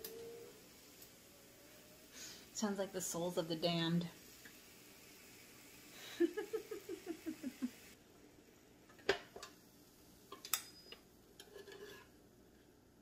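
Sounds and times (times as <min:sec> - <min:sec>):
hiss from iron: 0:00.0 - 0:08.0.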